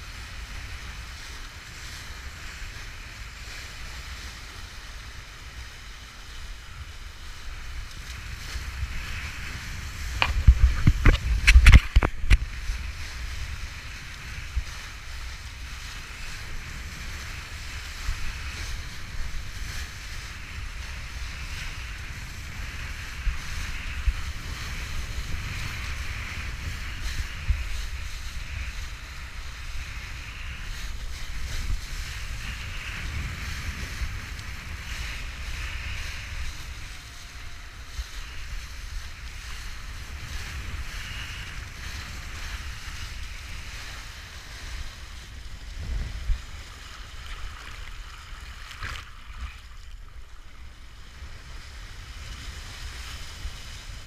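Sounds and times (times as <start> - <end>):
board planing through water: 0.0 - 54.0
wind buffeting microphone: 0.0 - 54.0.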